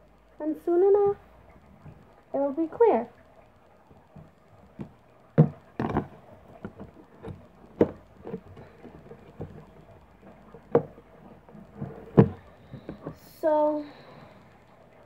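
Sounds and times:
plastic container clicks and knocks: 0:04.2 - 0:13.2.

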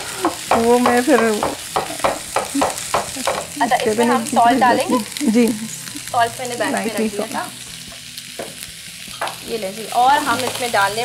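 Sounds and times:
vegetables sizzling in frying pan: 0:00.0 - 0:11.0
voices: 0:02.6 - 0:07.6, 0:09.5 - 0:11.0.

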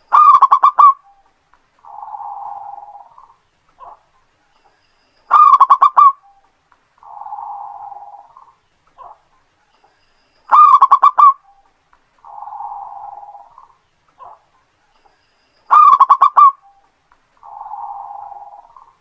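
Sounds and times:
dove cooing: 0:00.1 - 0:01.2, 0:01.8 - 0:04.0, 0:05.3 - 0:06.4, 0:07.0 - 0:09.2, 0:10.5 - 0:11.5, 0:12.2 - 0:14.5, 0:15.7 - 0:16.8, 0:17.4 - 0:19.0.

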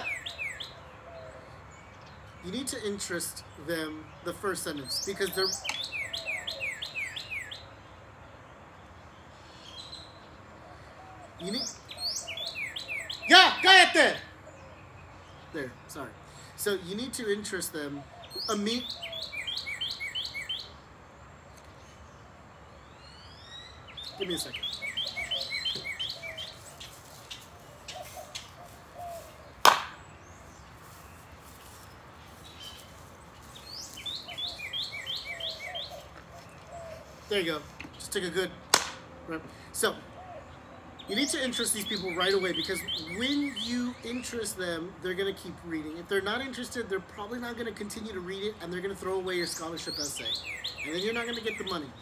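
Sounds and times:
bird chirping: 0:00.0 - 0:52.0
faint bird chirps: 0:21.5 - 0:38.0
sharp crack: 0:29.6 - 0:30.1, 0:38.6 - 0:39.1.

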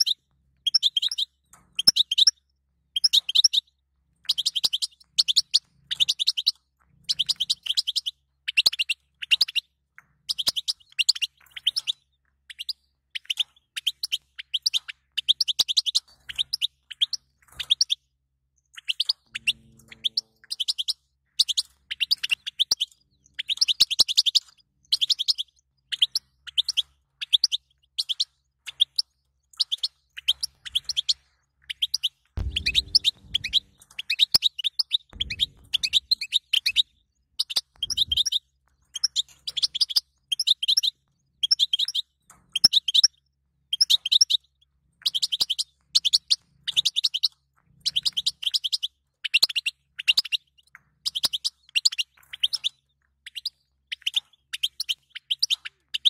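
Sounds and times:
goldfinch twittering chirps: 0:00.0 - 0:02.4, 0:04.2 - 0:09.6, 0:18.7 - 0:43.1
low rumble: 0:32.4 - 0:33.9, 0:35.2 - 0:36.3.

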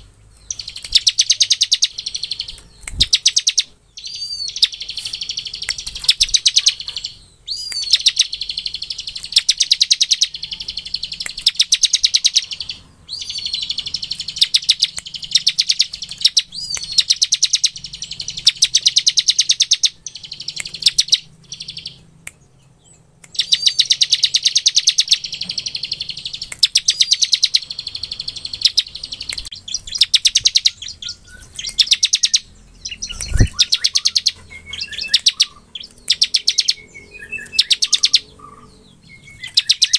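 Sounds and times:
bird singing rapid rattling song: 0:00.0 - 0:39.9.

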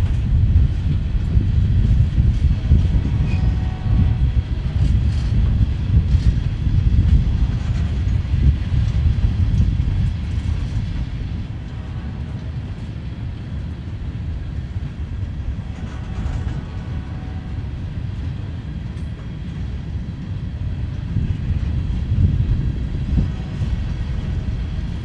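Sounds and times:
train wheels rumbling on rails: 0:00.0 - 0:25.0.

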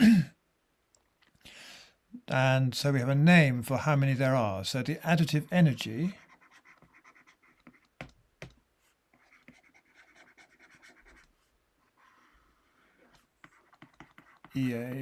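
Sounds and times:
stylus scratching on tablet: 0:05.3 - 0:15.0.

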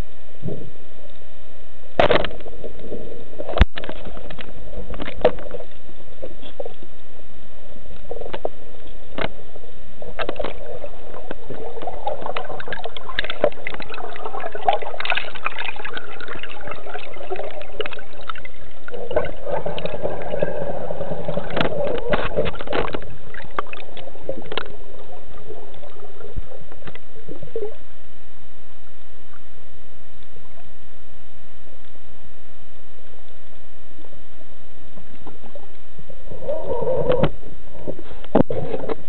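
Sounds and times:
underwater gurgling: 0:00.0 - 0:39.0
underwater clicks and knocks: 0:02.0 - 0:06.8, 0:08.0 - 0:09.4, 0:10.1 - 0:27.1, 0:36.9 - 0:39.0.

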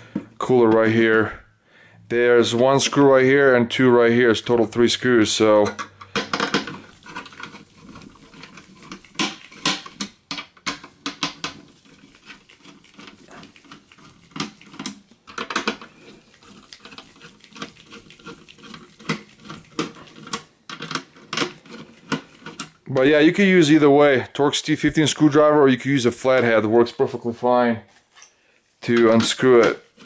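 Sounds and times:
scratchy rustle: 0:06.7 - 0:09.7, 0:11.5 - 0:15.0, 0:15.8 - 0:22.8, 0:27.0 - 0:30.0.

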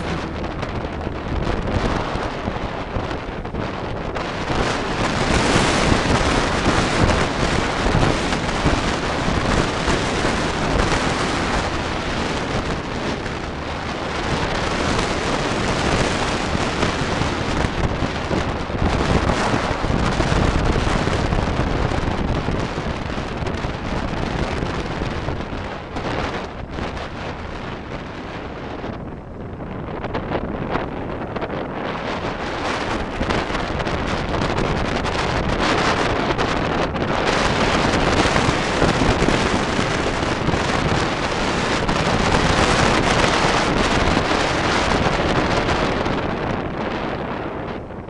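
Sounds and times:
wind buffeting microphone: 0:00.0 - 0:48.0.

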